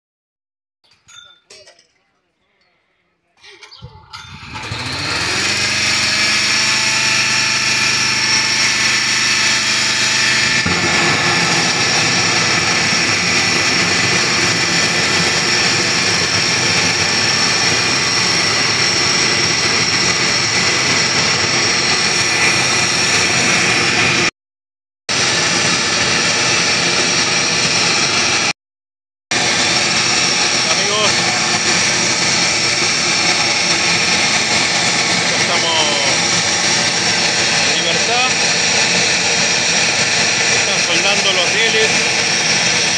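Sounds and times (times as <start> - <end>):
gas burner roaring: 4.0 - 24.3, 25.1 - 28.5, 29.3 - 42.9
low hum: 5.6 - 24.3.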